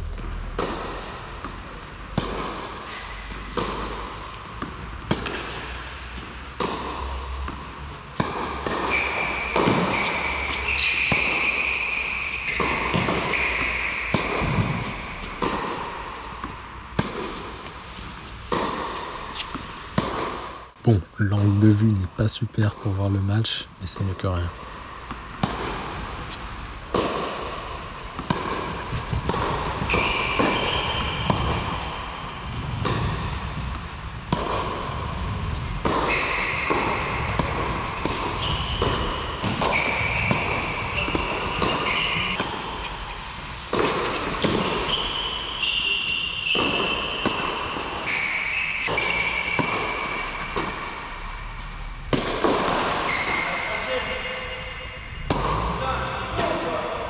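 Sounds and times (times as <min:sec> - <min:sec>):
tennis ball bouncing: 0:00.1 - 0:20.6, 0:24.0 - 0:45.2, 0:46.4 - 0:51.0, 0:52.1 - 0:53.2, 0:55.2 - 0:55.8
racket striking tennis ball: 0:00.6 - 0:20.6, 0:25.1 - 0:43.0, 0:43.7 - 0:45.0, 0:48.8 - 0:51.0, 0:52.1 - 0:53.2, 0:55.2 - 0:55.8.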